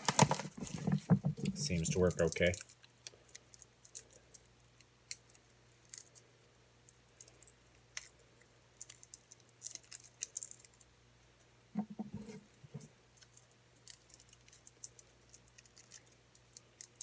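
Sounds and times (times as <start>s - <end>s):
garlic skins crackling: 0.0s - 6.2s
low steady hum: 0.0s - 17.0s.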